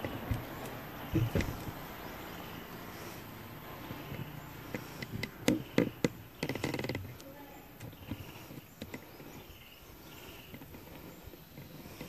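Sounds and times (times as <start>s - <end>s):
sharp clicks and knocks: 0.0s - 1.8s, 3.9s - 9.2s.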